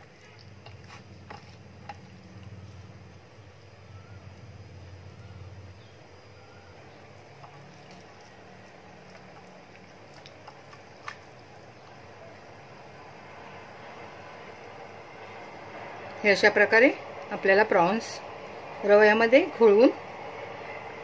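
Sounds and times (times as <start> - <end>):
wet squishing: 0.0 - 2.6, 7.0 - 12.2
low hum: 0.0 - 21.0.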